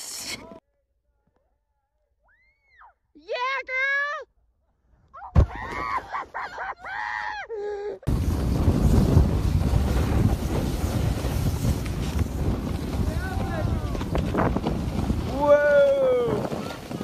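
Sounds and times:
wind rumble on microphone: 0:08.1 - 0:17.0.

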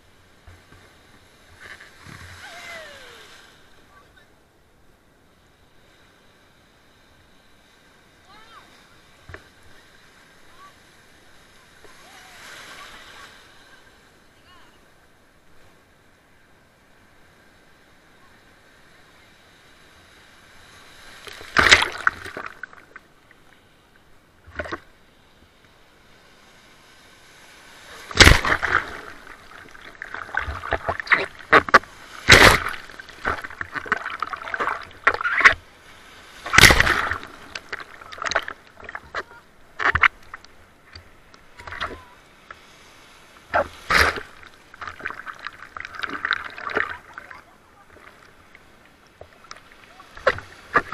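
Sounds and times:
sea water sloshing in surf: 0:07.6 - 0:14.2, 0:18.5 - 0:23.8, 0:26.0 - 0:50.9
sudden loud splashes: 0:28.1 - 0:29.2, 0:30.4 - 0:33.5, 0:36.4 - 0:38.5.

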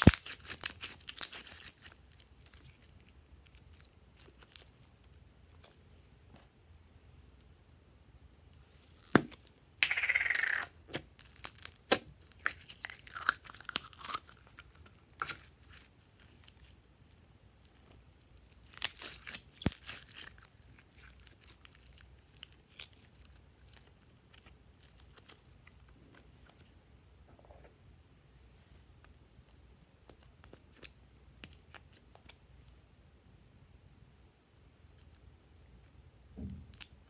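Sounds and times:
slime clicks and crackles: 0:00.0 - 0:04.8, 0:09.9 - 0:16.6, 0:18.6 - 0:26.6.

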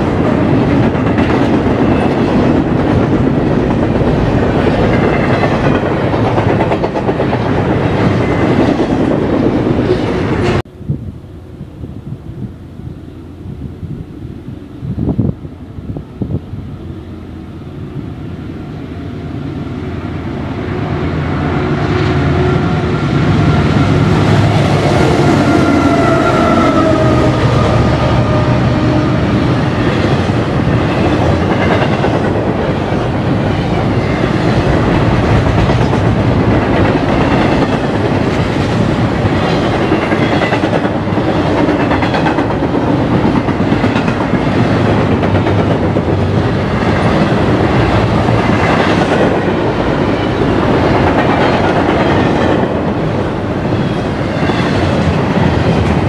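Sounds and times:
train wheels clattering on rails: 0:00.0 - 0:10.6, 0:21.9 - 0:56.0
diesel locomotive engines: 0:00.0 - 0:56.0.

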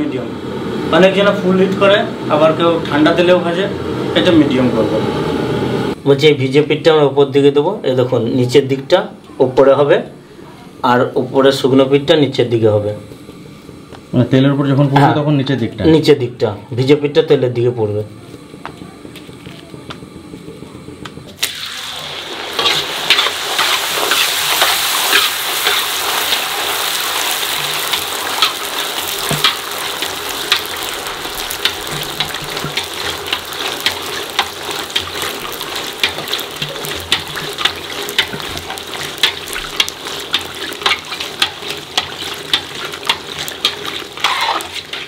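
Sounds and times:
dough deep-frying in oil: 0:05.4 - 0:45.0
crackling pops of frying: 0:18.3 - 0:45.0.

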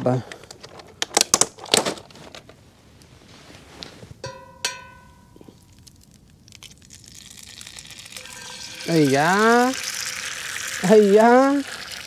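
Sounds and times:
metallic clinks: 0:04.2 - 0:05.7
egg sizzling in frying pan: 0:05.6 - 0:12.0.

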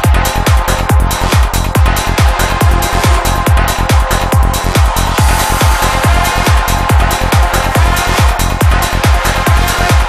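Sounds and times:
kick drum: 0:00.0 - 0:10.0
low bass: 0:00.0 - 0:10.0
sustained synth tones: 0:01.7 - 0:08.7.

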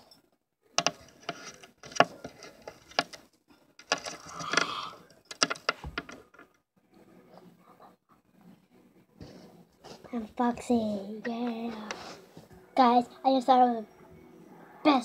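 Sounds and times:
sharp handling clicks and knocks: 0:00.8 - 0:06.6.

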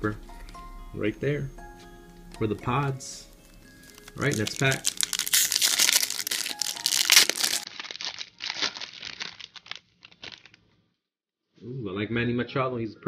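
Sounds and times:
card pack wrapper tearing and crinkling: 0:03.7 - 0:10.7.

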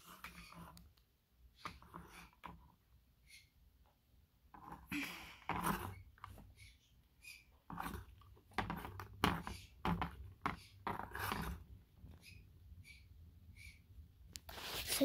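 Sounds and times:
plastic toy knocking and rubbing: 0:00.0 - 0:00.8, 0:01.6 - 0:02.9, 0:04.5 - 0:06.7, 0:07.3 - 0:12.4.

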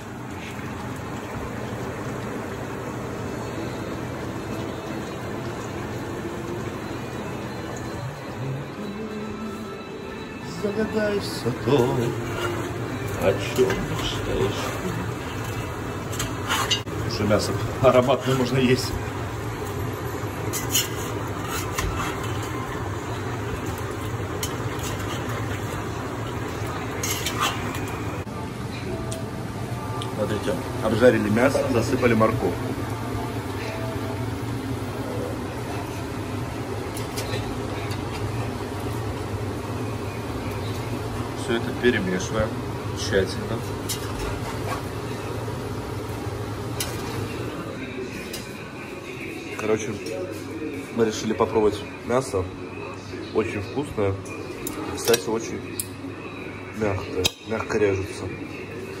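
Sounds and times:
meat sizzling and bubbling: 0:00.0 - 0:08.9, 0:10.5 - 0:28.3, 0:29.3 - 0:47.6
metal spoon clinking against pot: 0:27.0 - 0:27.9.

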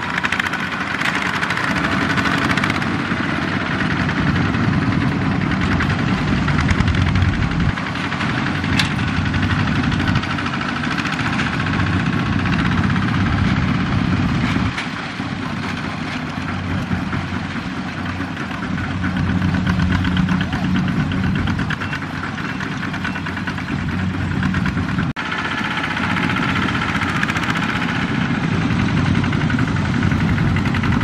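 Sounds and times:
diesel engine idling: 0:00.0 - 0:31.0.

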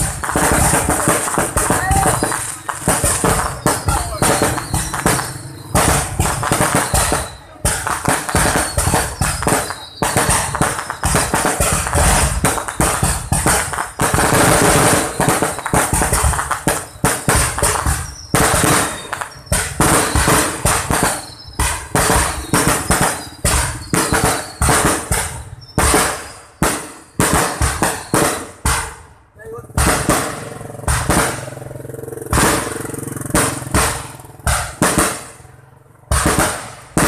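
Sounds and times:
firework whistle: 0:00.0 - 0:29.2
fireworks bangs and crackles: 0:00.0 - 0:37.0.

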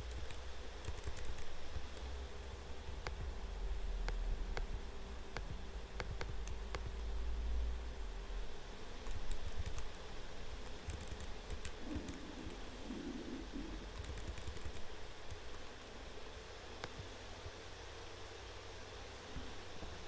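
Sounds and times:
typing on computer keyboard: 0:00.0 - 0:01.5, 0:09.0 - 0:10.0, 0:10.8 - 0:12.1, 0:13.9 - 0:14.9
low steady hum: 0:00.0 - 0:20.0.

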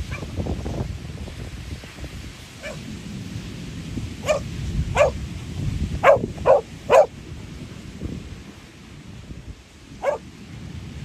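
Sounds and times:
surf: 0:00.0 - 0:11.0
wind: 0:00.0 - 0:11.0
dog barking: 0:00.1 - 0:00.3, 0:02.6 - 0:02.8, 0:04.2 - 0:05.2, 0:06.0 - 0:07.1, 0:10.0 - 0:10.2.

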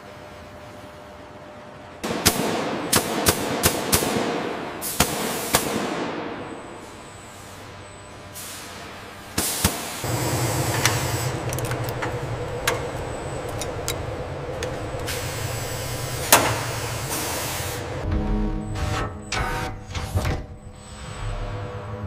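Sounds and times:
air hiss bursts: 0:04.8 - 0:06.0, 0:09.4 - 0:11.3, 0:15.1 - 0:17.9
low machinery hum: 0:05.9 - 0:22.0
sharp metallic clicks and knocks: 0:10.7 - 0:15.2.

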